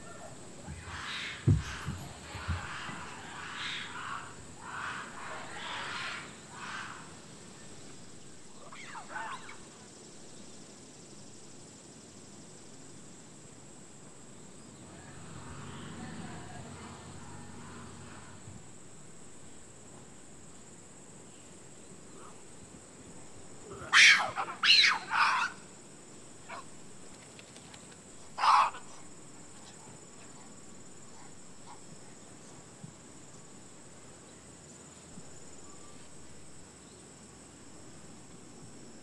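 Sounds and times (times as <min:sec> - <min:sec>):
baboons calling: 0:00.0 - 0:07.2, 0:08.6 - 0:09.7, 0:23.7 - 0:25.6, 0:28.4 - 0:29.0
faint high whine: 0:34.3 - 0:37.0.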